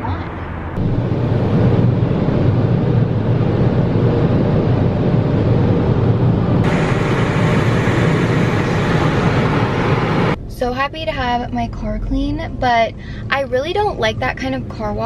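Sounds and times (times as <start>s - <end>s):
car wash water spraying: 4.9s - 10.4s.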